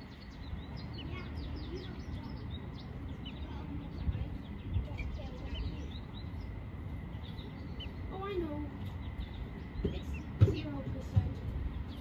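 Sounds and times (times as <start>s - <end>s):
birds chirping: 0.0s - 12.0s
steady low rumble: 0.0s - 12.0s.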